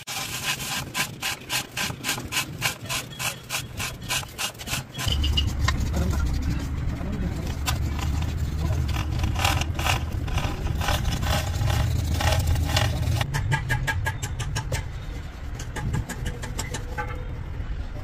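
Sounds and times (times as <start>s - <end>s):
motor rumbling: 5.0s - 13.3s.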